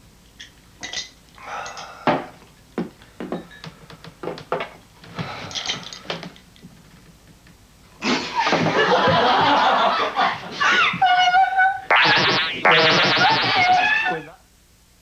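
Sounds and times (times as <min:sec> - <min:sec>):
glasses knocking and clinking: 0:03.2 - 0:03.8.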